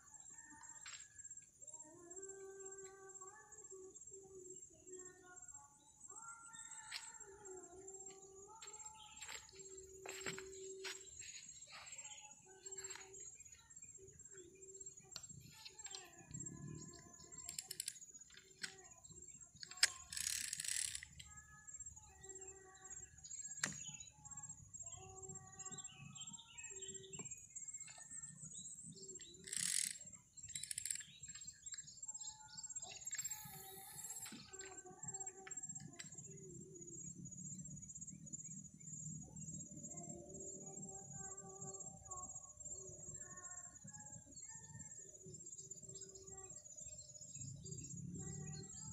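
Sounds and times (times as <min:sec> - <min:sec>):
high-pitched insect drone: 0:00.0 - 0:48.9
birds chirping: 0:05.8 - 0:39.7.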